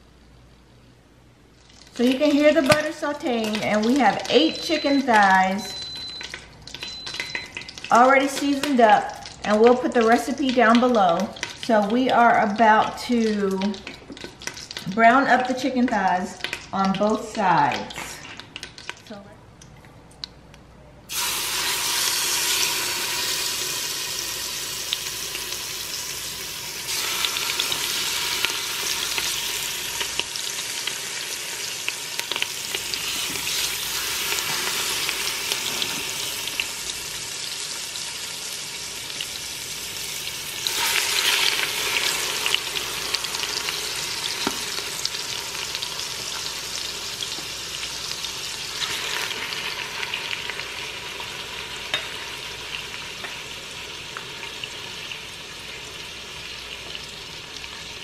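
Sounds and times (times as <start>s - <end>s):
chicken sizzling in butter: 21.1s - 58.0s.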